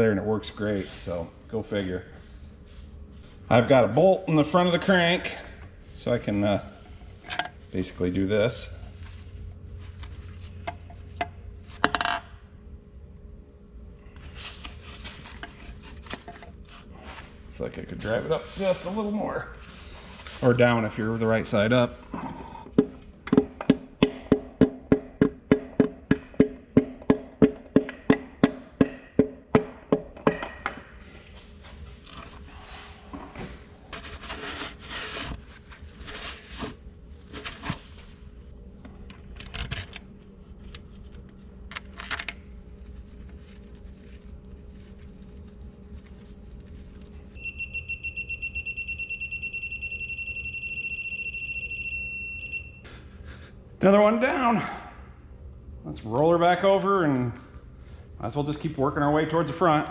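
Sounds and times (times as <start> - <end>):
handling noises: 30.2 - 47.4
torque wrench beeping: 47.4 - 52.8.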